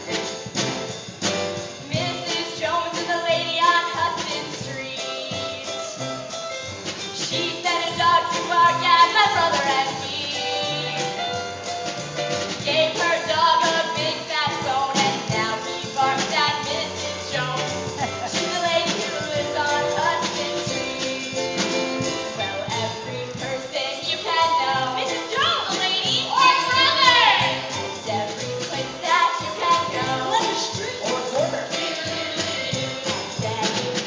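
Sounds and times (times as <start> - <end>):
upbeat backing music: 0.0 - 34.0
person singing: 12.7 - 34.0.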